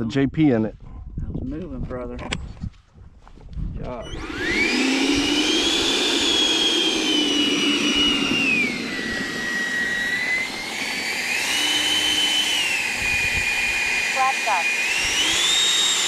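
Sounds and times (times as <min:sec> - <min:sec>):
electric ducted fan whining: 0:03.8 - 0:16.0.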